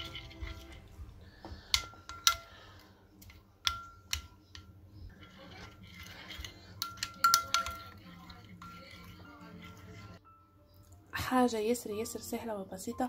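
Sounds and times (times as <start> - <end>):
spoon clinking against dish: 0.0 - 10.2
spoon scraping dish: 0.0 - 10.2.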